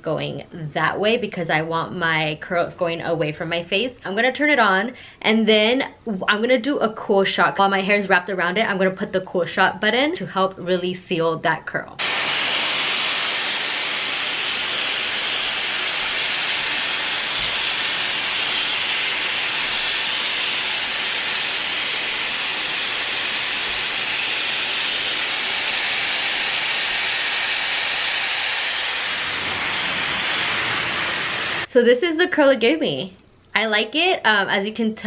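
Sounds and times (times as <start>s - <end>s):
hair styler blowing air: 12.0s - 31.7s.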